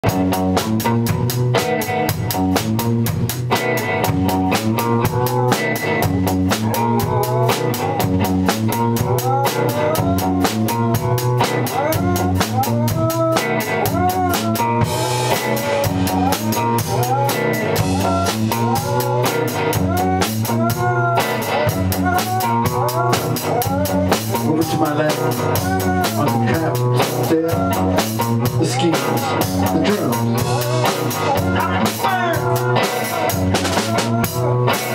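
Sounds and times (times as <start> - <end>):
drum kit beat: 0.0 - 34.9
rock band playing: 0.0 - 34.9
dog howling: 11.8 - 24.1.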